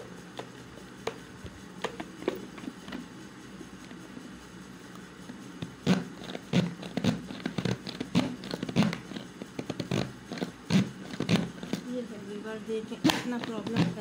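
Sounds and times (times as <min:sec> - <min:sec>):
plastic hand chopper knocking: 0:05.6 - 0:11.9, 0:13.0 - 0:14.0.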